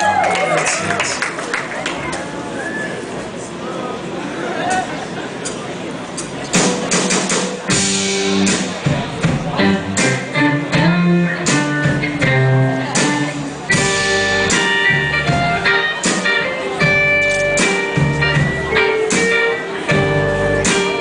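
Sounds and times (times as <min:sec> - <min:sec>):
live band playing: 0:06.2 - 0:21.0
electric guitars picking notes: 0:07.7 - 0:08.8, 0:09.5 - 0:21.0.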